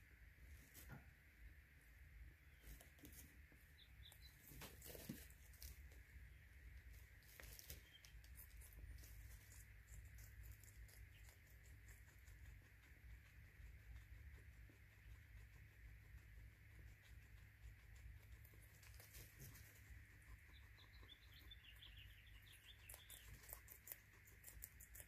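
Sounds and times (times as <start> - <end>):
low steady hum: 0.0 - 25.0
guinea pigs crunching food: 2.5 - 25.0.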